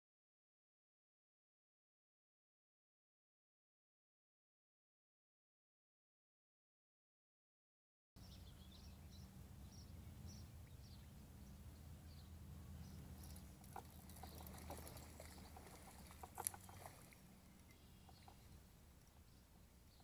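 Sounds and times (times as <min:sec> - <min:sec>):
faint water splashing: 0:08.4 - 0:20.0.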